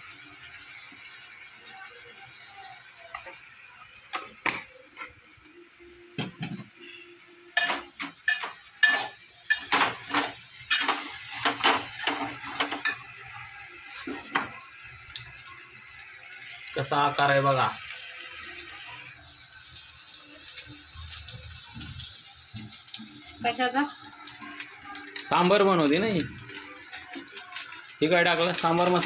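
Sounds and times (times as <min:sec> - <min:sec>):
metal kitchenware clinking: 0:07.6 - 0:13.1.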